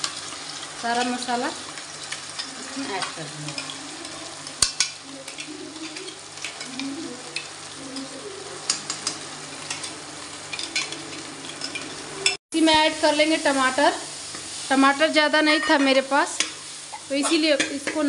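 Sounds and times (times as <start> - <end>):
paste sizzling in hot oil: 0.0 - 18.0
utensils clinking against pan: 0.5 - 12.4, 15.5 - 18.0.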